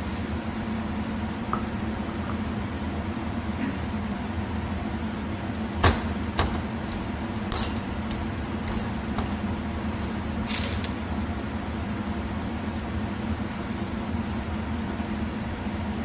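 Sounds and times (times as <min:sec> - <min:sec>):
steady background hum: 0:00.0 - 0:16.0
metal parts clinking and knocking: 0:05.8 - 0:11.0.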